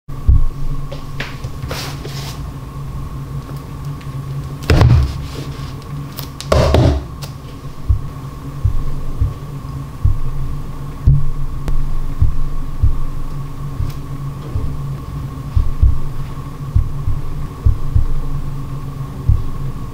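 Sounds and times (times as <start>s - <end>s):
droning background music: 5.8s - 19.9s.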